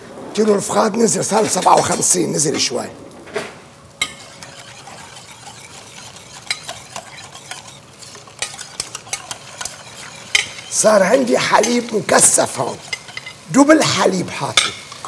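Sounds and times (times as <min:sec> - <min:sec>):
utensil scraping a metal saucepan: 0:01.3 - 0:02.2, 0:04.0 - 0:13.6.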